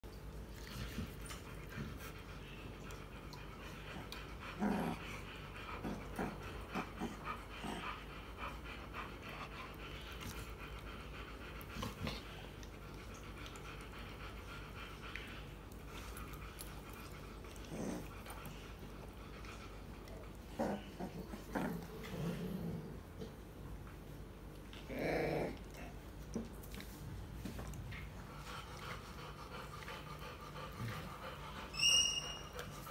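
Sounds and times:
dogs panting: 0:00.2 - 0:22.4, 0:25.8 - 0:32.9
dog growls: 0:03.8 - 0:10.7, 0:16.0 - 0:18.8, 0:20.0 - 0:23.4, 0:24.7 - 0:26.5.

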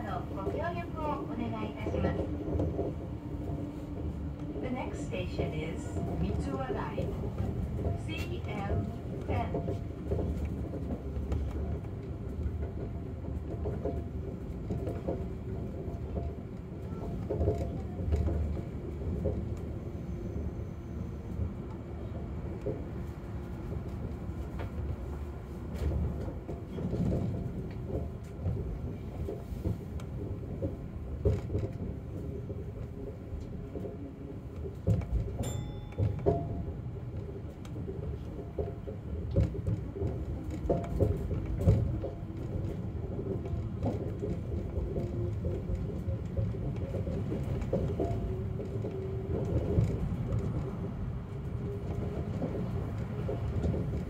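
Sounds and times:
monorail car rumbling: 0:00.0 - 0:54.0.

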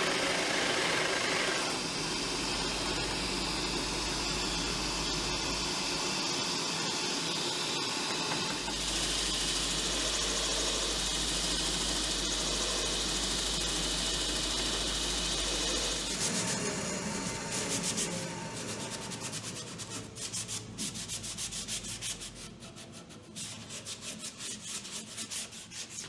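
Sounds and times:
hole saw cutting wood: 0:00.0 - 0:04.0
sanding drum sanding wood: 0:08.2 - 0:26.0.

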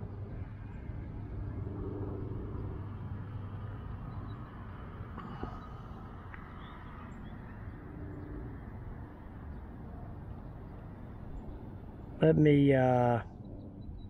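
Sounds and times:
faint bird chirps: 0:04.1 - 0:08.5.

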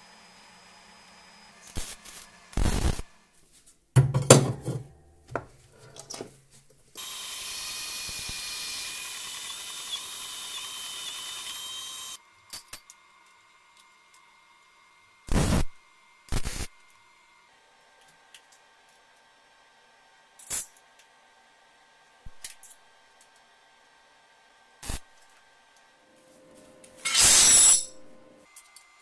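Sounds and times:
chop saw motor whining: 0:00.0 - 0:02.5, 0:07.0 - 0:12.2
arc welding bursts: 0:01.6 - 0:03.1, 0:07.0 - 0:12.2, 0:15.3 - 0:16.8, 0:24.8 - 0:25.1, 0:27.0 - 0:27.9.

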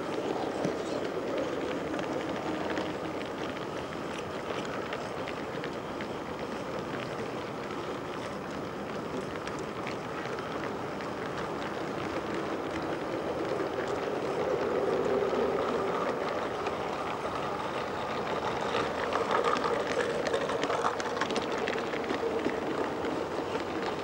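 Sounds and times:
model train rumbling on track: 0:00.0 - 0:24.0
wheels clicking on rails: 0:00.0 - 0:24.0.

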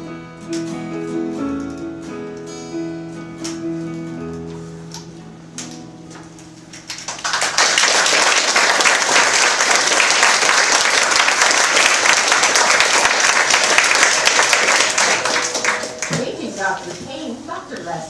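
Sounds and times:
audience applauding: 0:06.9 - 0:16.2.

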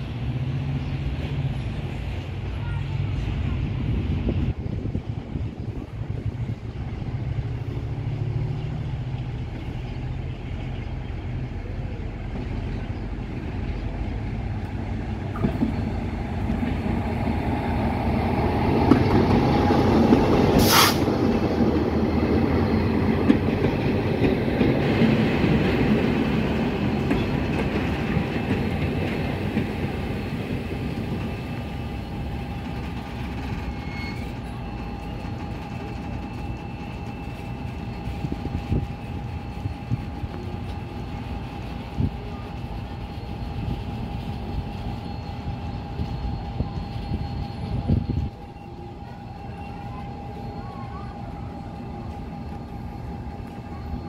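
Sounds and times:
diesel locomotive engine passing: 0:00.0 - 0:54.0
train brakes squealing: 0:15.2 - 0:54.0
hiss burst: 0:20.6 - 0:21.2.

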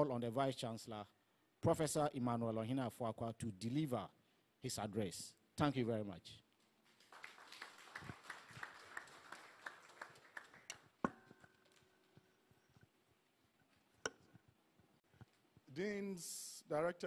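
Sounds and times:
audience applause: 0:07.0 - 0:10.9
sharp ringing knock: 0:11.0 - 0:11.4.

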